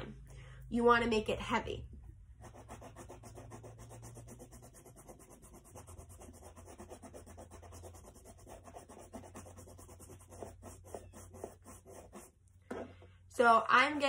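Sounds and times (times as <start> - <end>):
chalk scratching on paper: 2.4 - 12.4.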